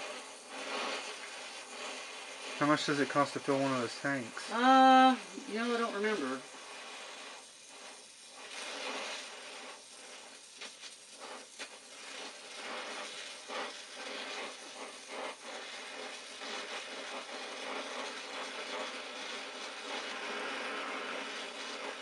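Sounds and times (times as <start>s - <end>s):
short crackles: 0.0s - 22.0s
torch flame hissing: 0.0s - 22.0s.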